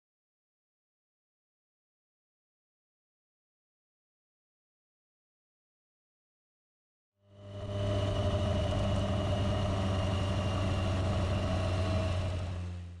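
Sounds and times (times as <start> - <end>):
motorcycle engine running: 7.3 - 13.0.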